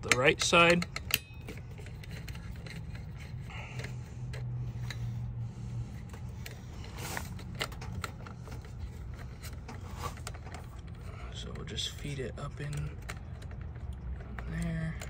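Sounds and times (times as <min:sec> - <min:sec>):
wire scraping and rubbing: 0:00.0 - 0:11.4
steady low hum: 0:00.0 - 0:15.0.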